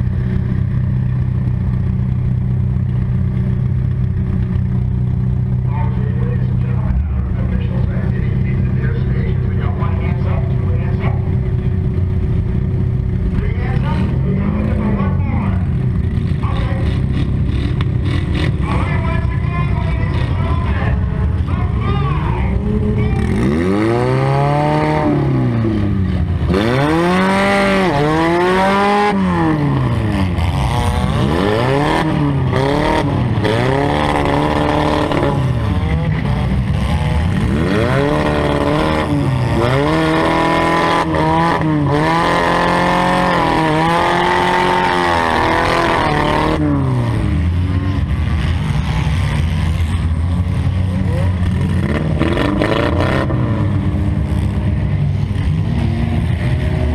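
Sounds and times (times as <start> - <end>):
car engine revving: 0.0 - 56.9.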